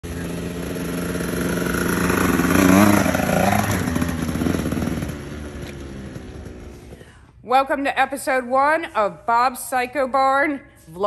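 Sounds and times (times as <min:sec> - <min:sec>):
dirt bike engine revving: 0:00.0 - 0:07.0.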